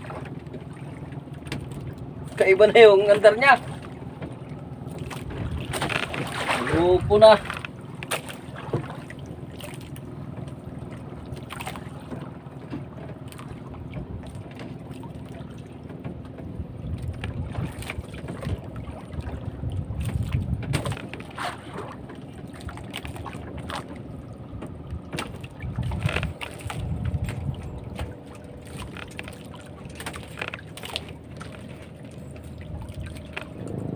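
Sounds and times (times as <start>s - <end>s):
boat engine running: 0.0s - 33.9s
wind gusts on microphone: 16.6s - 21.9s, 24.8s - 28.2s.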